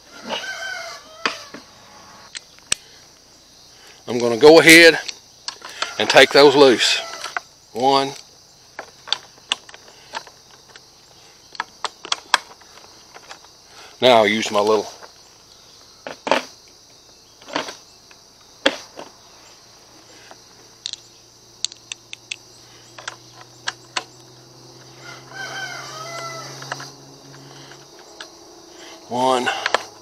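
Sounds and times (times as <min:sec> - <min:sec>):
rooster crowing: 0:00.0 - 0:02.3, 0:05.8 - 0:07.4, 0:24.5 - 0:27.6
high insect drone: 0:00.0 - 0:30.0.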